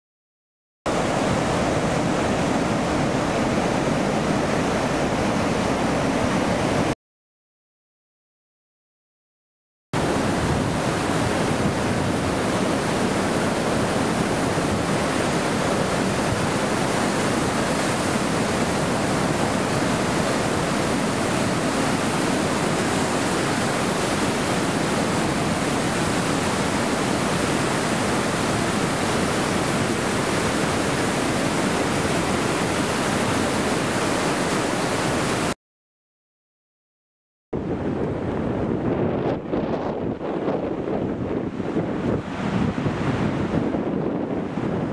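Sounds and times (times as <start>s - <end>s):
river rushing through dam: 0.9s - 6.9s, 10.0s - 35.6s.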